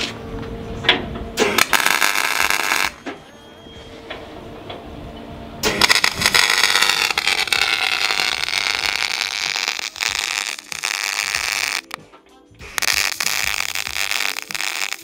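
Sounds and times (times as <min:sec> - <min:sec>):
welder arc crackling: 0:01.4 - 0:03.0, 0:05.6 - 0:12.0, 0:12.8 - 0:15.0.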